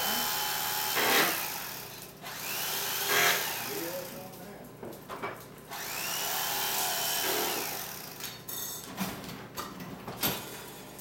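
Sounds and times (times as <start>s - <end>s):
electric knife motor whine: 0.0s - 3.8s, 5.7s - 8.2s.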